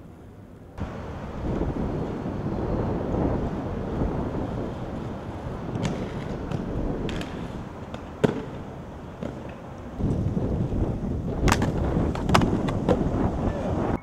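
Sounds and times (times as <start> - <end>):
skate wheels grinding on pavement: 0.8 - 14.0
skates clacking on ground: 4.9 - 10.3, 11.4 - 13.1.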